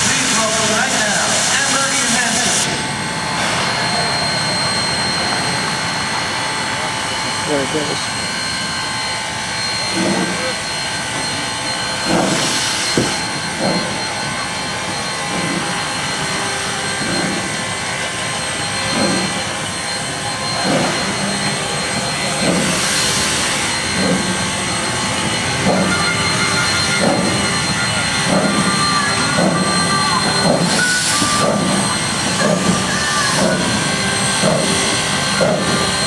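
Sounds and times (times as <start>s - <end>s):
steam hissing: 0.0s - 3.9s, 6.0s - 36.0s
steam locomotive exhaust chuffs: 0.0s - 36.0s.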